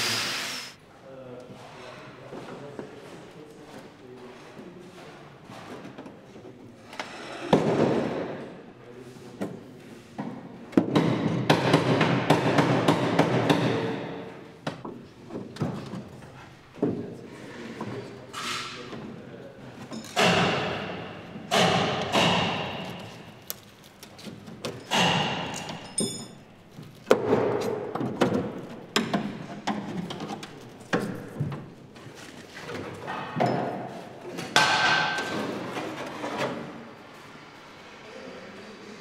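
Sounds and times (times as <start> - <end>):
knocks on car body metal: 10.8 - 13.9, 20.2 - 22.9.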